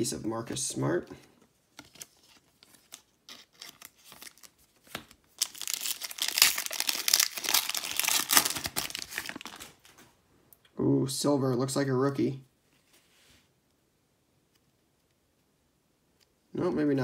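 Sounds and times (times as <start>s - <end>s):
handling of trading cards: 1.5s - 10.1s
card pack wrapper tearing: 1.8s - 9.9s.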